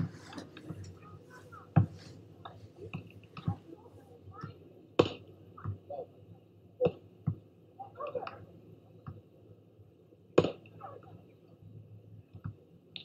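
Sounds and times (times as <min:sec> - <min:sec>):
hands striking volleyball: 0:10.4 - 0:10.7.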